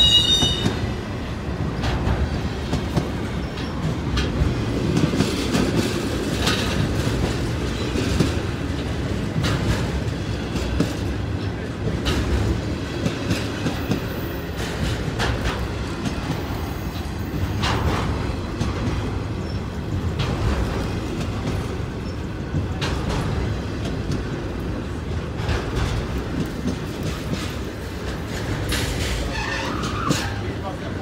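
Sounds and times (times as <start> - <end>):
freight train wheels rumbling: 0.0 - 31.0.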